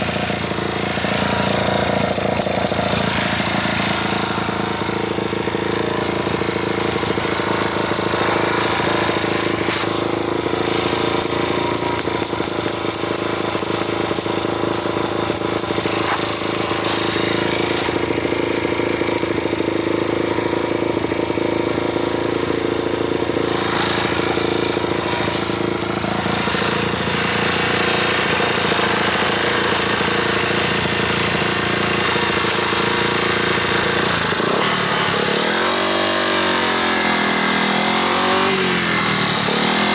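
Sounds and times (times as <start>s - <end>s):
motorcycle engine running: 0.0s - 39.9s
rapid light clicks: 11.2s - 17.0s.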